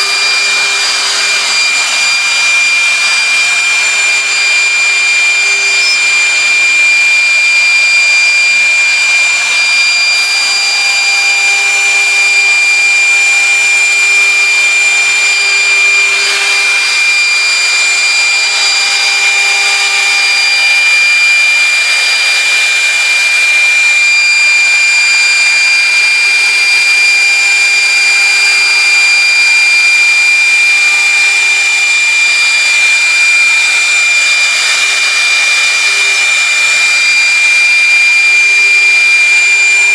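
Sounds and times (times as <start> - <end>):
industrial machine running: 0.0 - 5.4
high-pitched whine: 0.0 - 39.9.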